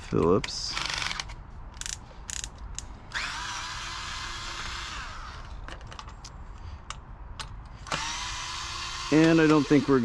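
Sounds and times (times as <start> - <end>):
electric screwdriver running: 3.2 - 5.5, 7.9 - 10.0.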